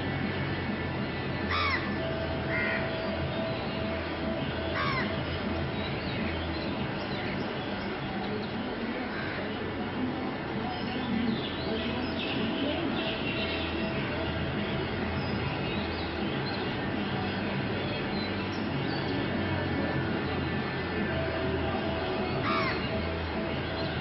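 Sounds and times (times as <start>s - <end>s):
crows cawing: 1.5s - 2.9s, 4.8s - 5.1s, 22.4s - 22.8s
small birds chirping: 10.6s - 24.0s.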